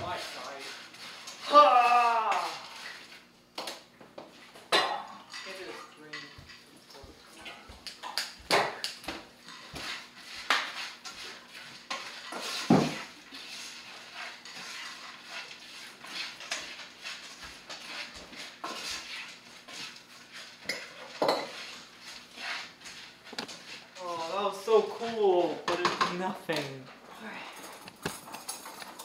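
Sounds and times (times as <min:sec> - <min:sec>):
dishes and cutlery clattering: 0:04.6 - 0:21.8, 0:27.3 - 0:29.0.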